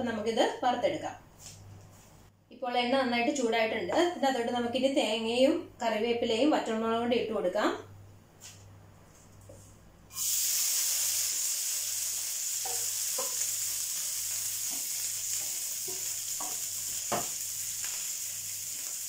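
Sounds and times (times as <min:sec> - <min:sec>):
food sizzling in hot oil: 0:10.1 - 0:19.0.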